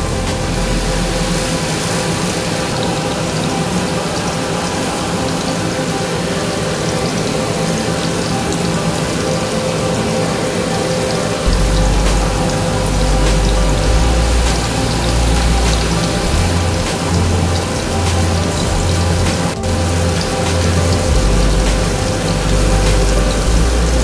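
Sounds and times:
low rumble: 0:00.0 - 0:01.6, 0:11.5 - 0:24.0.

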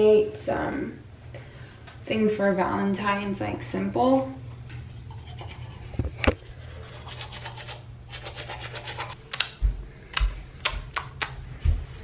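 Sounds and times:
toothbrush scrubbing teeth: 0:04.9 - 0:09.2.

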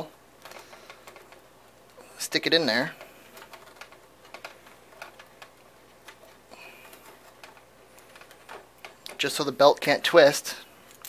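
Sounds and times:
small clicks and taps: 0:00.0 - 0:02.0, 0:03.0 - 0:09.4.

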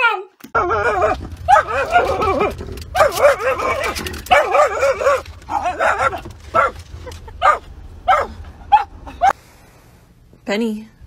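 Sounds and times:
dog howling and whining: 0:00.0 - 0:06.8
dog yelping: 0:00.0 - 0:09.4.

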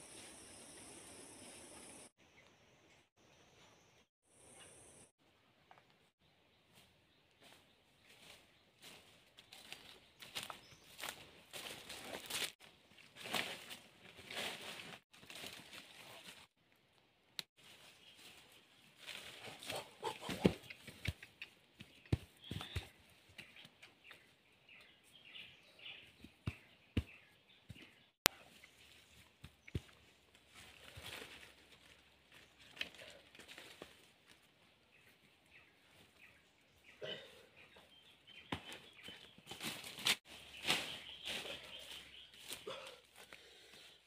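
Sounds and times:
footsteps in dry leaves: 0:08.1 - 0:16.5, 0:39.4 - 0:42.9
birds chirping: 0:17.8 - 0:31.5, 0:34.4 - 0:44.0
knocks and scuffs: 0:19.7 - 0:24.3, 0:25.9 - 0:28.4, 0:29.2 - 0:30.1, 0:38.4 - 0:42.6.

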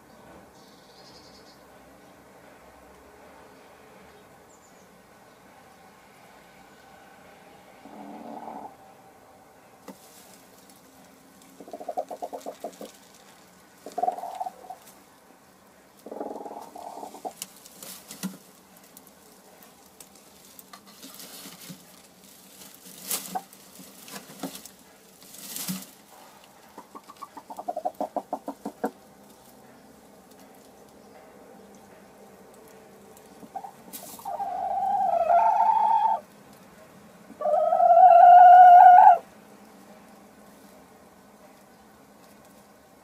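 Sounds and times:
hen clucking trills: 0:07.8 - 0:08.8, 0:11.4 - 0:15.0, 0:16.0 - 0:17.6, 0:23.0 - 0:30.2, 0:31.8 - 0:36.5, 0:37.2 - 0:39.3
straw crackling and rustling: 0:09.8 - 0:35.0, 0:39.5 - 0:43.0.

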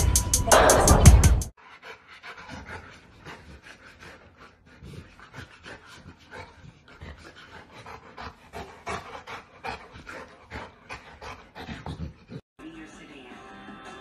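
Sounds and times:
dog panting: 0:01.6 - 0:12.4.

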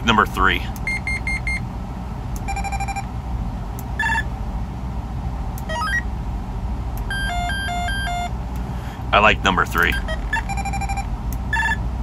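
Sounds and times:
radio beep tones: 0:09.9 - 0:11.8.

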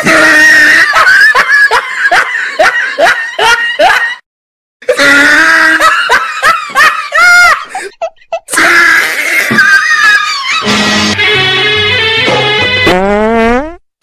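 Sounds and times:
people laughing: 0:00.0 - 0:04.2, 0:04.9 - 0:08.6, 0:09.4 - 0:10.9
high-pitched screaming voices: 0:08.5 - 0:11.0.

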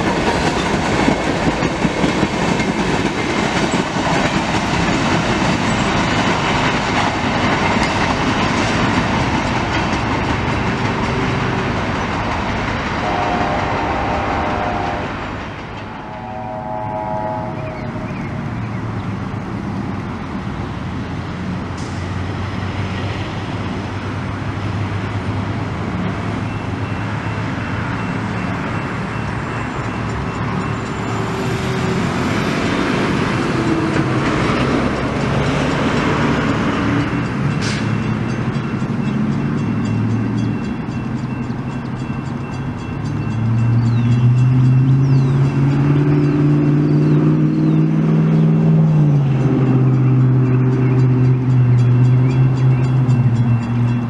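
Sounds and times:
train wheels rumbling: 0:00.0 - 0:54.0
engine rising in pitch: 0:13.2 - 0:19.5.

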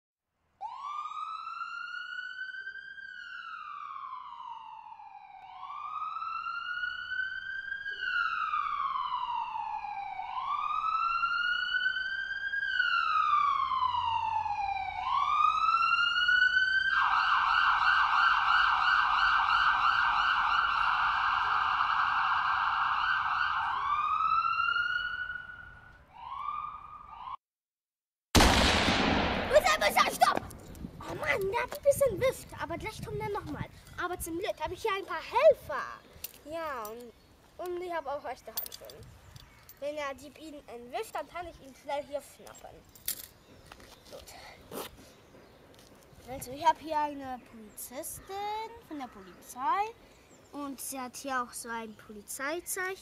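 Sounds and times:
police siren wailing: 0:00.6 - 0:27.4
siren rapid yelp: 0:00.6 - 0:27.4.

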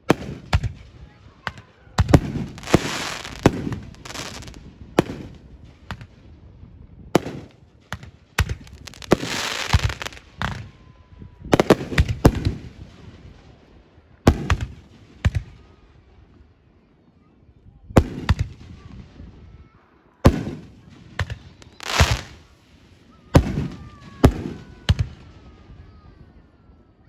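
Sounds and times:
fireworks bangs: 0:02.0 - 0:06.1, 0:07.2 - 0:07.5, 0:08.4 - 0:10.7, 0:20.3 - 0:22.6.

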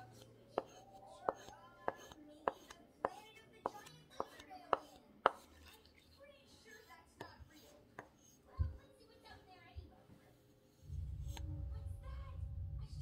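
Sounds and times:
axe stropping taps: 0:00.1 - 0:05.9, 0:06.7 - 0:08.4.

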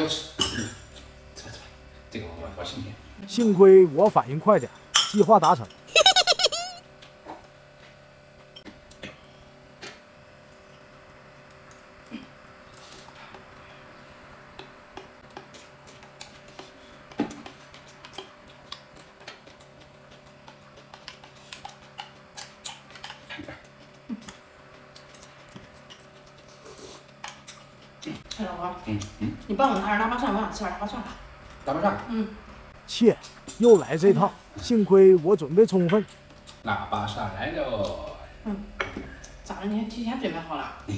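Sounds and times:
chewing sounds: 0:14.6 - 0:29.9.

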